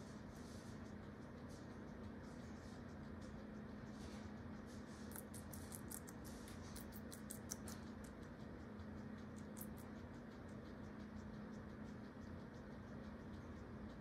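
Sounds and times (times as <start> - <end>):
faint steady hum: 0.0 - 14.0
guinea pig chewing crunches: 0.0 - 14.0.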